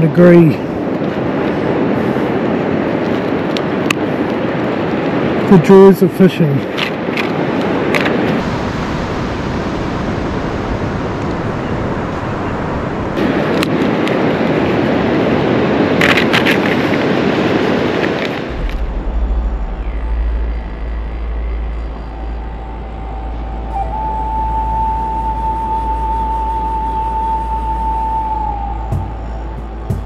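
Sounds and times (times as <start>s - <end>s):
wind on microphone: 0.0s - 30.0s
deep rumble: 18.3s - 30.0s.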